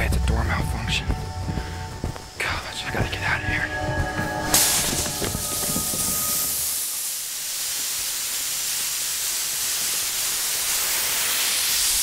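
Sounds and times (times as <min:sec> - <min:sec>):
compressed air hissing: 0:03.1 - 0:12.0.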